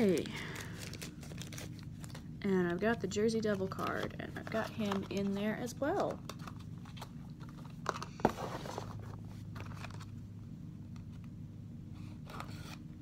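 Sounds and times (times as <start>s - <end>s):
low steady hum: 0.0s - 13.0s
cardboard rustle and scrape: 8.2s - 10.1s.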